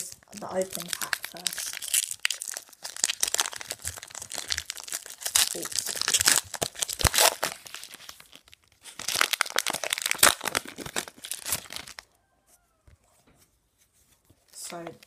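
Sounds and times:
foil wrapper tearing and crinkling: 0.0s - 12.0s.

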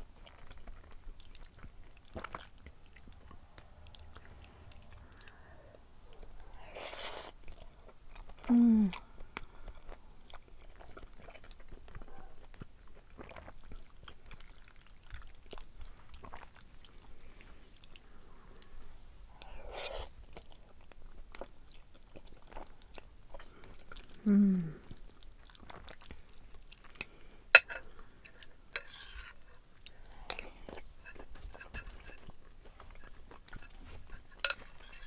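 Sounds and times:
chewing and slurping noodles: 6.8s - 18.8s, 24.8s - 35.0s
person humming: 8.4s - 9.1s, 24.2s - 24.9s.

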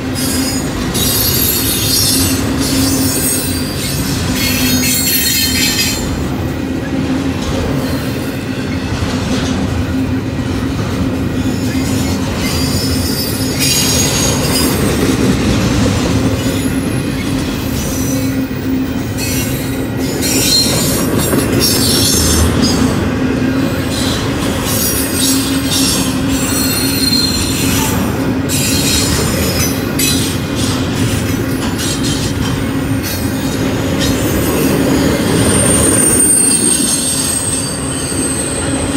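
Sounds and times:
train wheels rumbling on rails: 0.0s - 38.9s
high-pitched wheel squeal: 0.2s - 6.1s, 11.6s - 14.8s, 19.2s - 21.0s, 23.8s - 30.7s, 34.0s - 38.9s
wheels clicking over rail joints: 23.7s - 35.9s.

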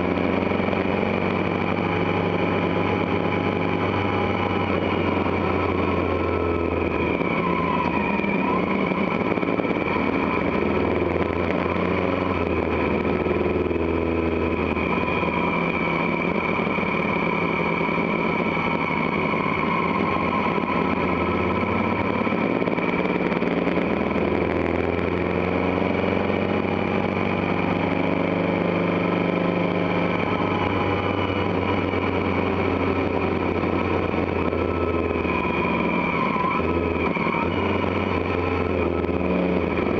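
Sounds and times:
motorcycle engine running: 0.0s - 39.9s
wind and road noise: 0.0s - 39.9s.

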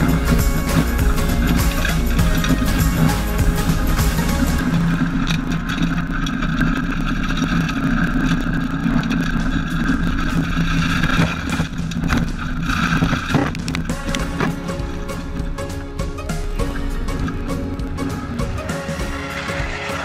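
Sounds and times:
rally car engine revving: 0.0s - 15.6s
road noise: 0.0s - 20.0s.

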